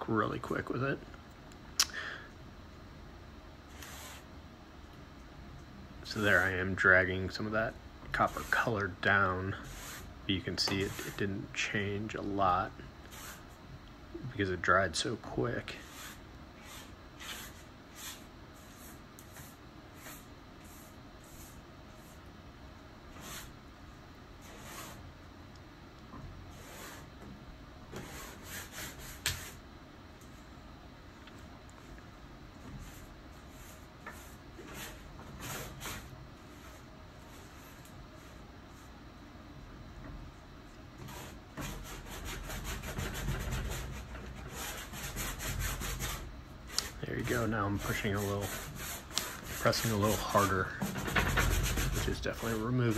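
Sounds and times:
hand rubbing on canvas: 3.7 - 4.3, 8.2 - 8.8, 9.5 - 10.1, 15.8 - 22.2, 23.1 - 23.6, 24.4 - 25.0, 46.8 - 52.9
tool rubbing on canvas: 3.7 - 4.3, 8.1 - 11.3, 13.0 - 13.5, 15.8 - 22.2, 23.1 - 23.6, 24.4 - 25.1, 26.5 - 27.1, 27.9 - 29.6, 32.6 - 38.9, 41.0 - 52.9.

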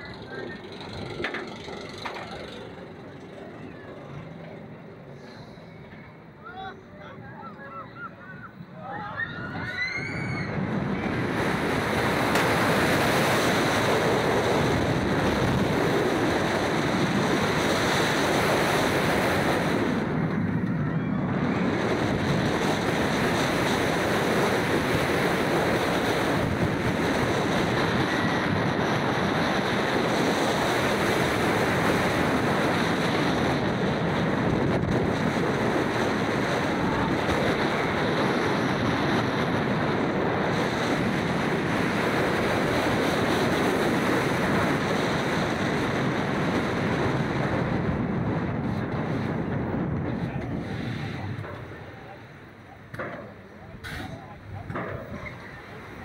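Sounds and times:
wind rushing over microphone: 7.2 - 56.0.

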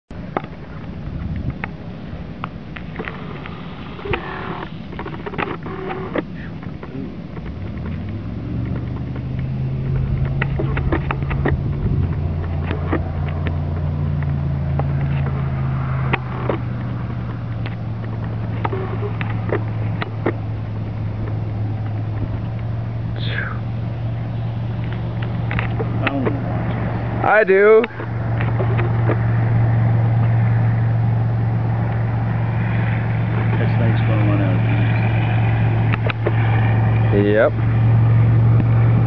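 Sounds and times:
engine droning: 0.1 - 39.0.

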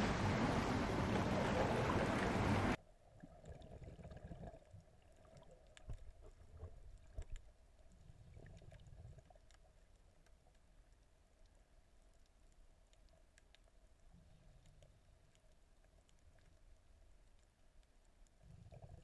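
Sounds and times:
sea surf rushing: 0.0 - 2.8
low underwater rumble: 0.0 - 9.9
small underwater clicks: 3.2 - 19.0.

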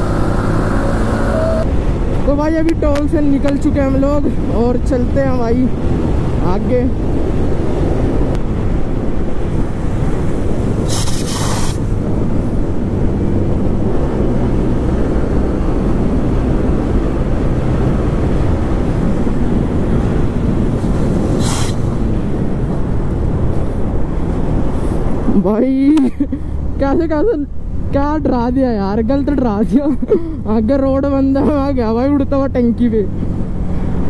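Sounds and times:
wind rush on microphone: 0.0 - 34.0
brief rushing hisses: 10.9 - 11.9, 21.4 - 22.0.

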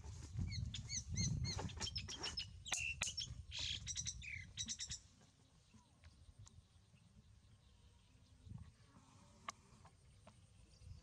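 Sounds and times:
short high chirping calls: 0.4 - 5.1.

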